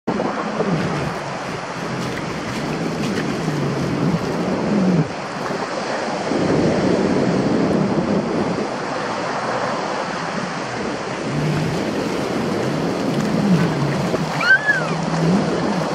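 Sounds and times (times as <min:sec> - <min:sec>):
sea surf washing over sand: 0:00.1 - 0:15.9
wind noise: 0:00.1 - 0:15.9.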